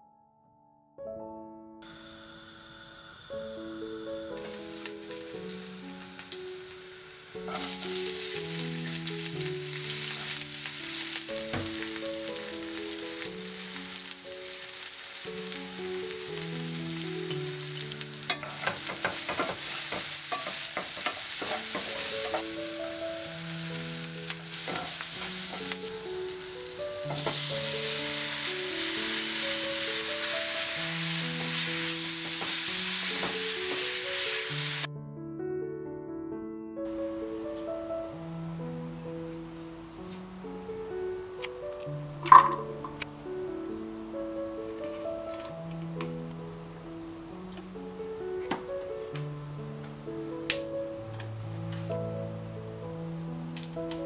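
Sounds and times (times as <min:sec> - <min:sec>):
soft background music: 0:00.0 - 0:54.0
oil sizzling in a frying pan: 0:01.8 - 0:34.9.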